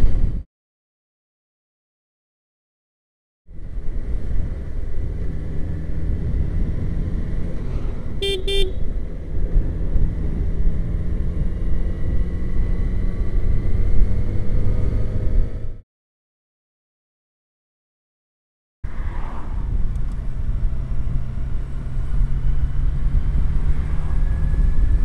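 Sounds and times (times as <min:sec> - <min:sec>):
wind noise: 0:00.0 - 0:00.4, 0:18.8 - 0:25.0
horn toots: 0:08.2 - 0:08.8
motorcycle engine running: 0:08.2 - 0:08.9.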